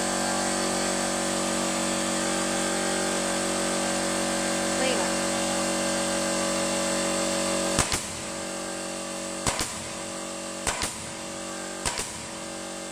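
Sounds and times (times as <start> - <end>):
air compressor humming: 0.0 - 12.9
nail gun firing: 7.6 - 8.4, 9.3 - 12.5.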